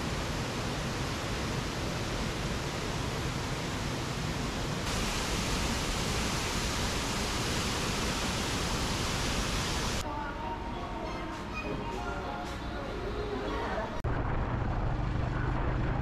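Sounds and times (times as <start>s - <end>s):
waterfall rushing: 4.8s - 10.0s.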